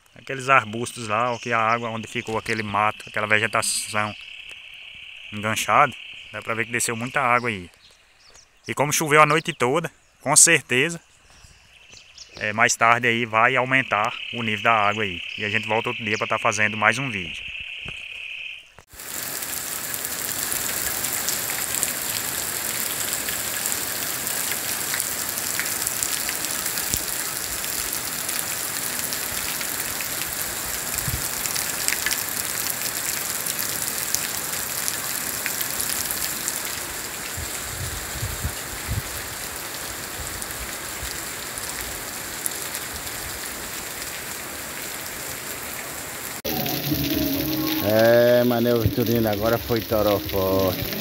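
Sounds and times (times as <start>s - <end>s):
heavy rain on roof tiles and pavement: 18.9s - 51.0s.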